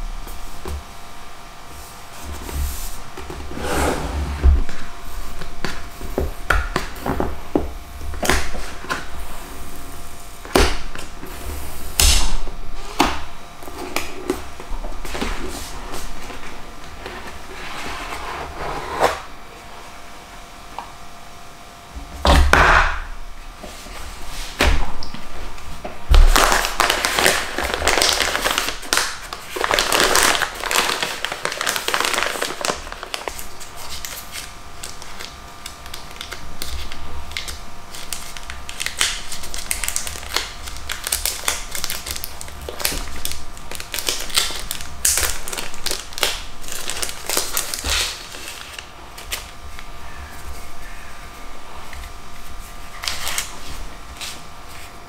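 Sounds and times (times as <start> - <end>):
plastic wrapping crinkling: 26.1 - 50.8, 51.8 - 55.0.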